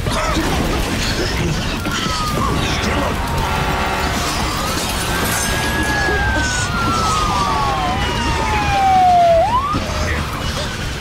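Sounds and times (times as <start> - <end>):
loud steady rushing: 0.0 - 11.0
emergency vehicle sirens: 0.1 - 11.0.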